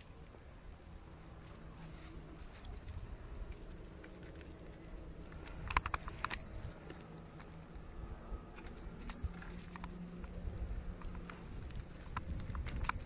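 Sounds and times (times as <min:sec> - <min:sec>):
wind rumble: 0:00.0 - 0:13.0.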